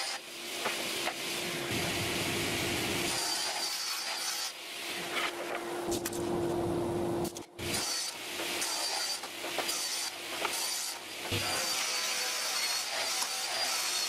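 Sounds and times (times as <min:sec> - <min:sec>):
table saw cutting plywood: 0:02.8 - 0:05.6, 0:07.6 - 0:14.0.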